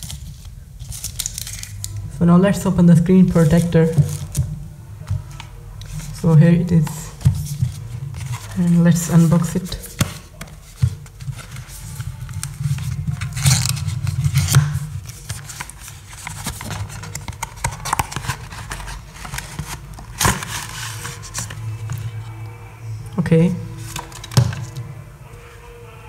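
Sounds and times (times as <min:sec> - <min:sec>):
cardboard sliding and rustling: 0:07.1 - 0:21.9.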